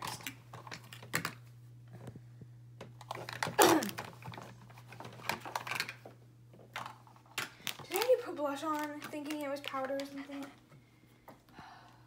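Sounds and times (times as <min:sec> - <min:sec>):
plastic containers clattering: 0:02.8 - 0:10.6.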